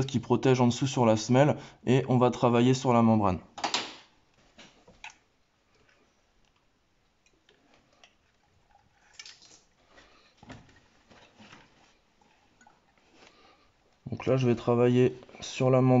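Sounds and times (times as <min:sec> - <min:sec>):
cloth rustling: 0:09.0 - 0:15.6.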